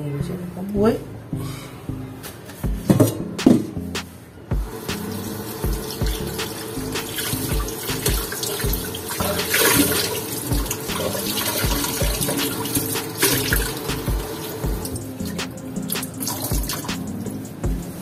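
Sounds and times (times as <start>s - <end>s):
background music with steady beat: 0.0s - 18.0s
kitchen tap running: 4.6s - 15.4s, 16.0s - 17.2s
water splashing into metal sink: 4.8s - 17.1s.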